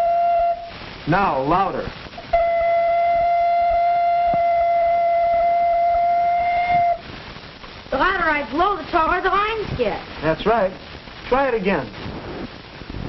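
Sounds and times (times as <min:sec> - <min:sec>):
ocarina steady note: 0:00.0 - 0:09.5.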